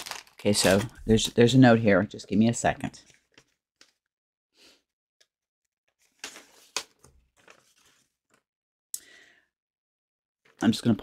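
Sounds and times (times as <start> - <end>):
paper rustling and clicking: 0.0 - 1.0, 3.0 - 4.0, 5.9 - 8.4.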